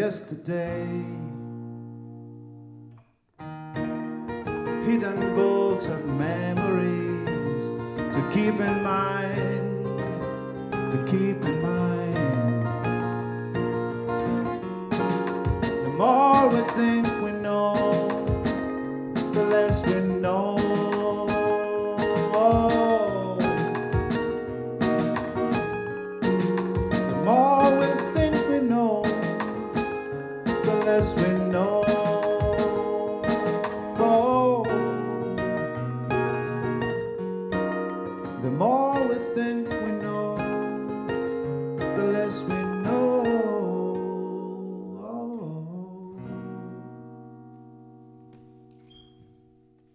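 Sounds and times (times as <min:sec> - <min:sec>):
acoustic guitar strumming: 0:00.0 - 0:49.9
keyboard synthesizer chords: 0:12.3 - 0:38.3
sliding melody line: 0:14.2 - 0:37.7.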